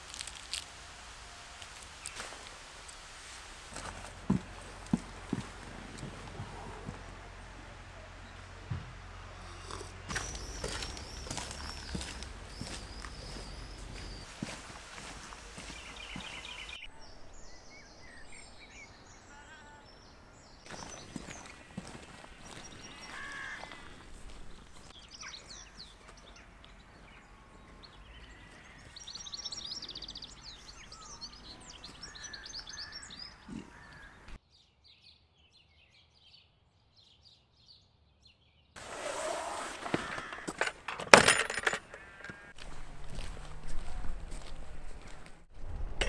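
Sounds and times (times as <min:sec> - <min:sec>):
footsteps and rustling: 0:00.0 - 0:00.9, 0:01.5 - 0:16.9, 0:20.7 - 0:27.0, 0:38.8 - 0:45.9
small birds chirping: 0:03.7 - 0:38.8.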